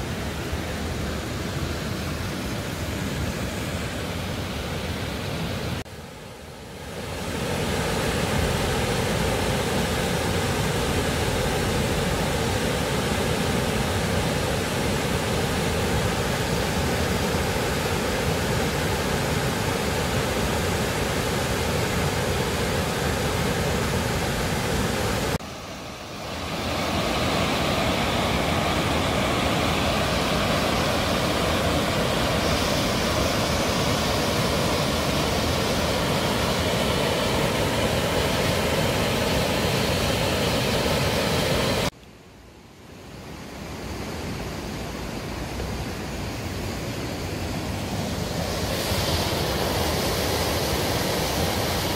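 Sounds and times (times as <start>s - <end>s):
waterfall rushing: 6.8s - 41.9s, 45.3s - 51.9s.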